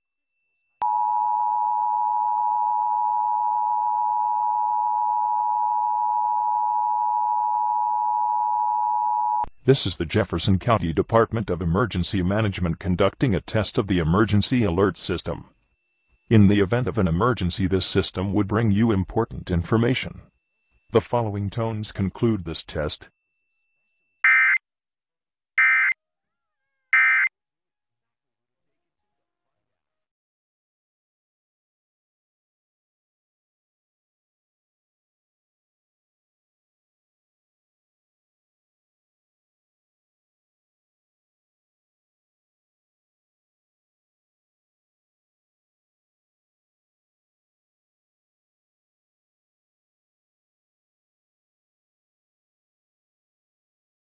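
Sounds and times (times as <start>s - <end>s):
two-tone alert signal: 27.0s - 27.3s.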